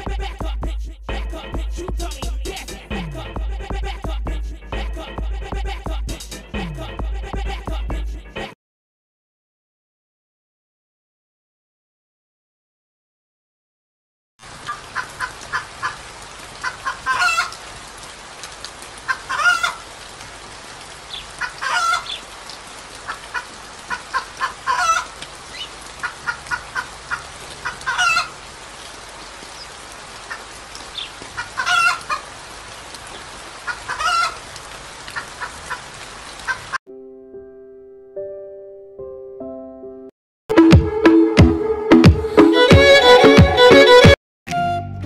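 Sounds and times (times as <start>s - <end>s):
chickens clucking: 14.6s - 16.0s, 16.6s - 17.6s, 19.0s - 19.9s, 21.4s - 22.2s, 23.0s - 28.4s, 30.3s - 32.3s, 33.6s - 34.4s
sharp chicken call: 16.6s - 17.6s, 19.1s - 19.8s, 21.4s - 22.2s, 24.1s - 25.1s, 26.0s - 28.4s, 31.4s - 32.2s, 33.7s - 34.4s.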